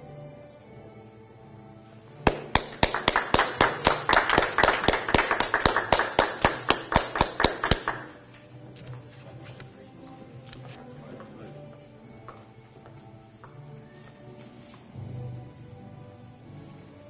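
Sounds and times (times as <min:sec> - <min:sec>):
soft background music: 0:00.0 - 0:17.0
hand clapping: 0:02.2 - 0:08.4.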